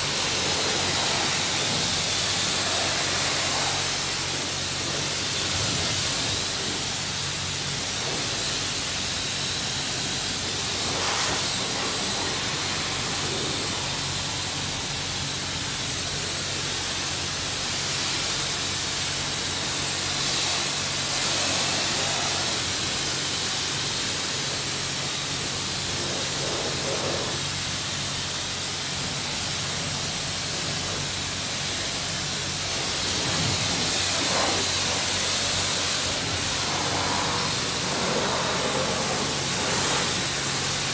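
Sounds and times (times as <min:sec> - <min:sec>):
pressure washer spray hissing: 0:00.0 - 0:40.9
steady low hum: 0:29.0 - 0:40.9.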